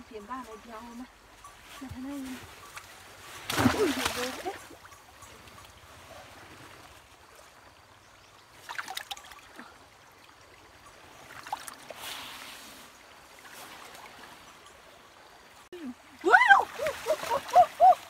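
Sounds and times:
water trickling: 0.0s - 18.0s
brief water splashes: 3.4s - 4.6s.

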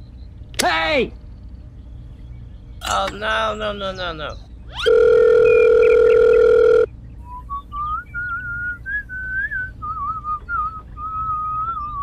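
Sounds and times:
electronic phone ringing: 4.8s - 6.9s
whistled tune: 7.2s - 12.0s.

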